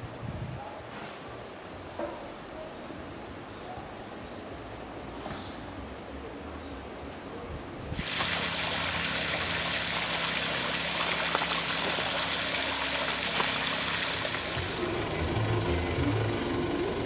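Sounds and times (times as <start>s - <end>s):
running water rushing: 8.0s - 15.2s.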